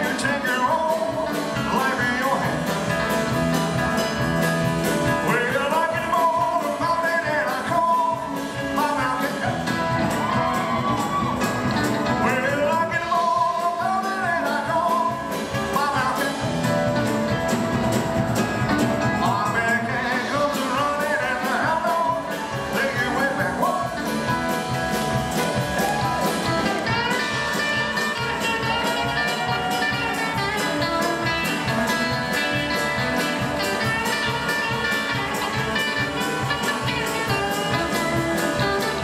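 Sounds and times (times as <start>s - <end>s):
man singing: 0.0s - 3.4s, 5.0s - 11.0s, 12.0s - 17.1s, 19.0s - 24.8s
electric guitar: 0.0s - 39.0s
rock band playing: 0.0s - 39.0s.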